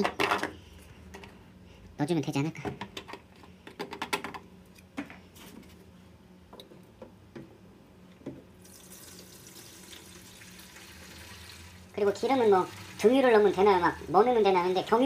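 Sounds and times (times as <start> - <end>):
liquid filling a tank: 8.6 - 14.5.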